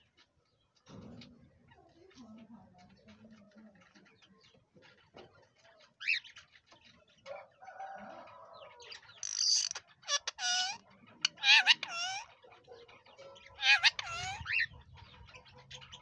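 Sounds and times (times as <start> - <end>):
parakeet calling and screeching: 9.2 - 12.5, 13.6 - 14.8.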